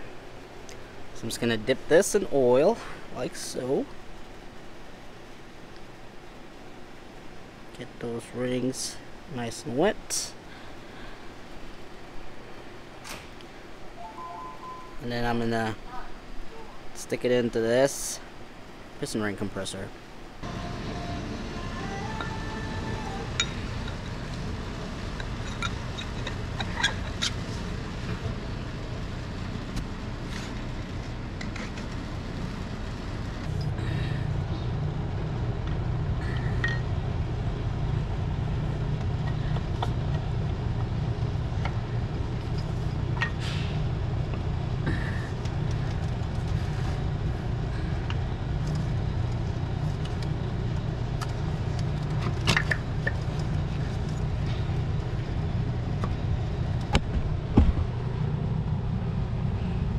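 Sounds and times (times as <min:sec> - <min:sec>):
low mechanical drone: 0:20.2 - 0:59.9.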